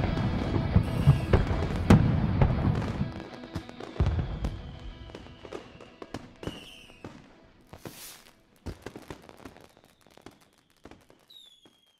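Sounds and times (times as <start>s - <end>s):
fireworks crackling and popping: 0.0s - 11.9s
firework whistle: 0.8s - 1.7s, 3.6s - 7.2s, 7.8s - 8.3s, 9.4s - 11.9s.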